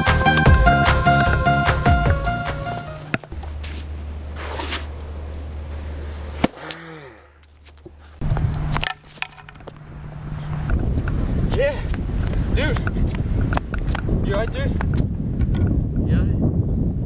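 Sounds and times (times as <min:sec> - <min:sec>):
low steady hum: 0:00.4 - 0:11.4
tennis racket hitting ball: 0:08.2 - 0:09.8.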